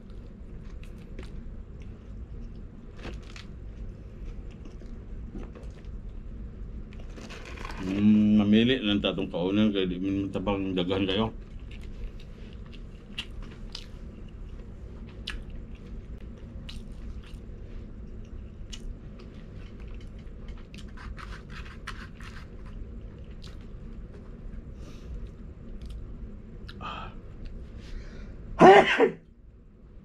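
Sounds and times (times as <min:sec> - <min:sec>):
person chewing food: 0:00.0 - 0:05.9, 0:11.5 - 0:24.3.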